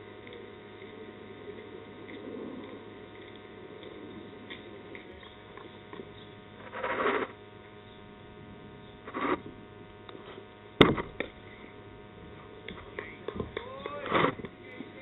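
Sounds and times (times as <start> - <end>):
steady low hum: 0.0 - 15.0
short bursts of noise: 6.0 - 7.5, 9.0 - 9.6.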